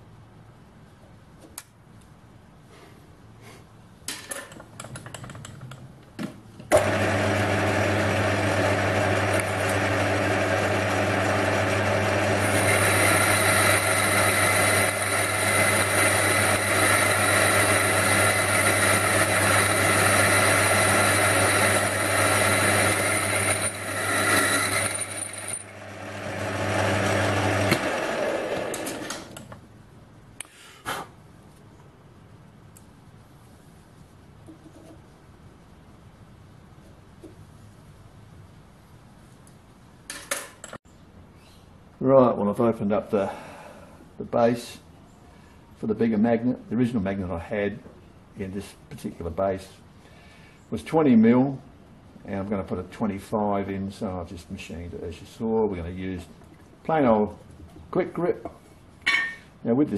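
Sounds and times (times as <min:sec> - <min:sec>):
lathe motor and gear hum: 0:06.7 - 0:29.4
boring tool high thin whine: 0:11.8 - 0:29.2.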